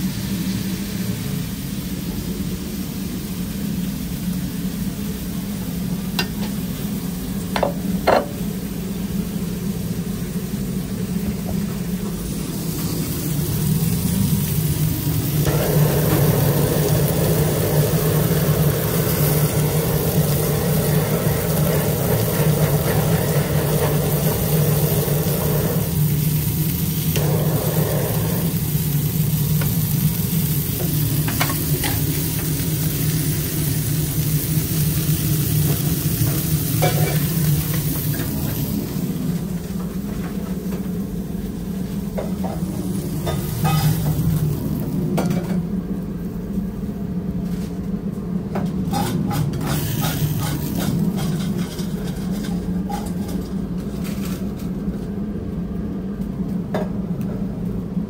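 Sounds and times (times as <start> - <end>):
faint griddle sizzling: 0.0 - 46.9, 48.9 - 54.7
steady low hum: 0.0 - 58.0
blow torch hissing: 12.2 - 39.4, 41.6 - 45.1, 49.6 - 51.4.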